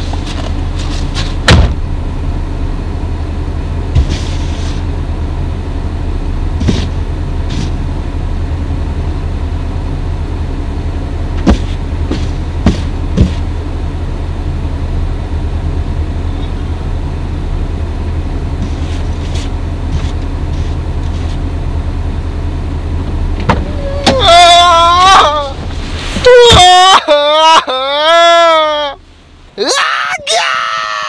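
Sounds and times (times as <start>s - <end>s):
car engine idling: 0.0s - 30.4s
car door shutting: 0.1s - 1.8s, 3.9s - 4.8s, 11.4s - 13.5s, 23.4s - 24.3s
knocks on car window: 1.4s - 1.8s, 11.4s - 13.4s
snow brushed off window: 4.0s - 4.9s, 6.6s - 7.8s, 18.6s - 21.4s, 25.6s - 26.6s.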